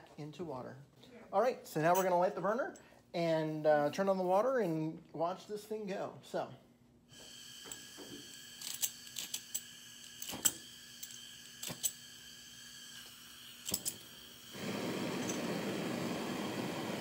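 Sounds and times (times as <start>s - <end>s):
gas flame rushing: 9.8s - 17.0s.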